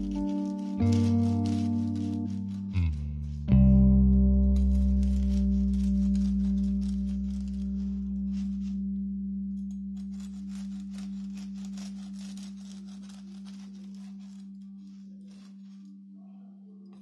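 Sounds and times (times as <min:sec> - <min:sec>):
calm background music: 0:00.0 - 0:17.0
bread knife sawing crusty bread: 0:10.1 - 0:14.6.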